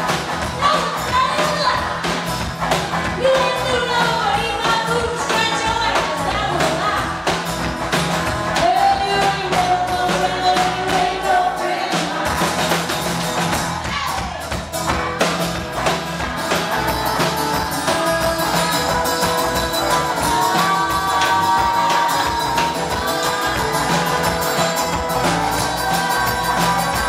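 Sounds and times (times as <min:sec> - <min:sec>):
drum kit: 0:00.0 - 0:27.0
rock and roll band playing: 0:00.0 - 0:27.0
woman singing loudly: 0:17.8 - 0:24.3.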